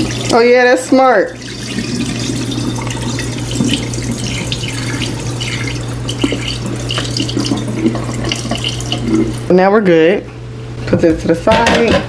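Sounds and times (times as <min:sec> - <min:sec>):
tap water splashing into pot: 0:02.8 - 0:09.0.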